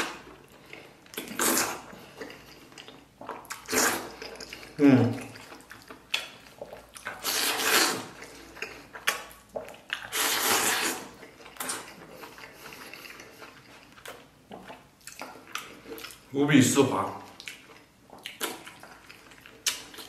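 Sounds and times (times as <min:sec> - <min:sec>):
noodles slurped: 0:00.0 - 0:02.8, 0:03.4 - 0:05.9, 0:06.5 - 0:13.6
chewing: 0:00.0 - 0:16.3, 0:17.2 - 0:20.0.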